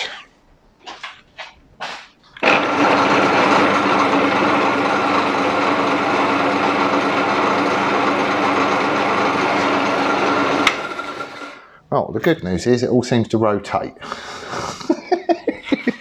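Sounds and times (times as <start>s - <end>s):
milling machine humming and whining: 2.4s - 11.6s.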